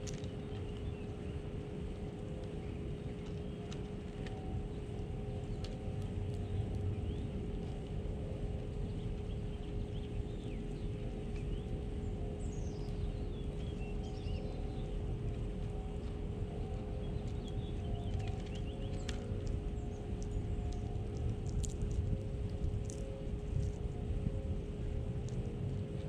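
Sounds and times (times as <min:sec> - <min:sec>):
constant hum: 0:00.0 - 0:26.0
low rumble: 0:02.2 - 0:26.0
small birds chirping: 0:08.8 - 0:15.0, 0:17.0 - 0:21.8.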